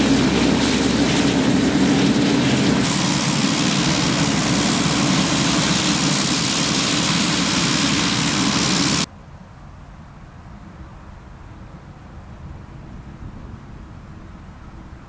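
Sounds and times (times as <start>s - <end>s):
turboprop engine running: 0.0s - 9.1s.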